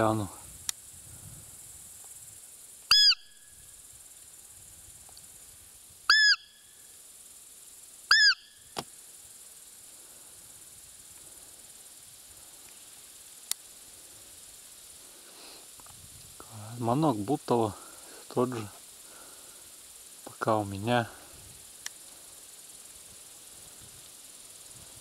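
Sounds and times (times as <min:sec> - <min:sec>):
deer call squeaks: 0:02.9 - 0:03.4, 0:06.1 - 0:06.6, 0:08.1 - 0:08.6
faint click: 0:05.0 - 0:05.3, 0:13.4 - 0:13.7, 0:21.8 - 0:22.0.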